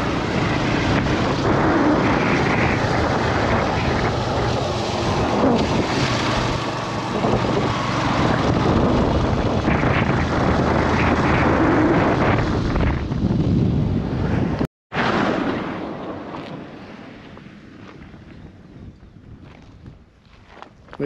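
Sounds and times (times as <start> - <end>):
motorcycle engine running: 0.0 - 13.5
wind buffeting microphone: 0.0 - 21.0.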